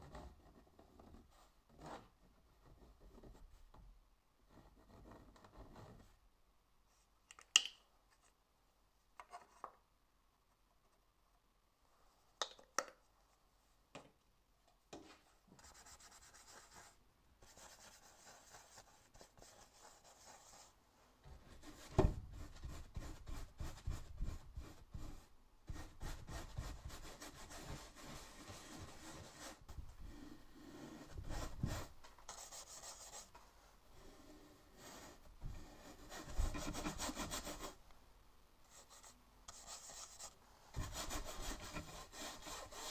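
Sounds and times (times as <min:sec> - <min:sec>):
paintbrush scrubbing canvas: 0:15.6 - 0:20.8, 0:21.4 - 0:33.4, 0:34.0 - 0:37.8, 0:38.7 - 0:42.9.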